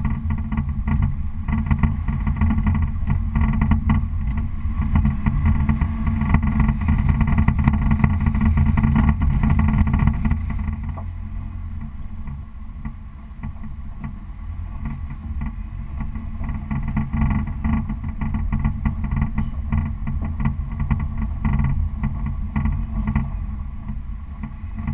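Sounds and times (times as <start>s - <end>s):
car engine and road rumble: 0.0s - 24.9s.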